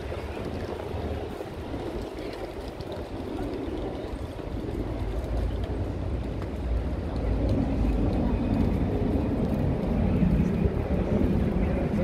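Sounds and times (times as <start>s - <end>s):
indistinct crowd voices: 0.0s - 12.0s
traffic rumble: 0.0s - 12.0s.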